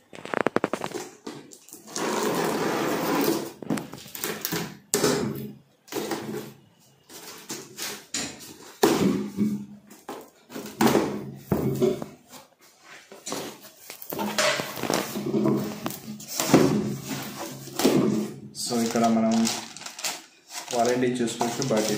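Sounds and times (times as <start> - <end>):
cardboard rustling: 12.7 - 21.9.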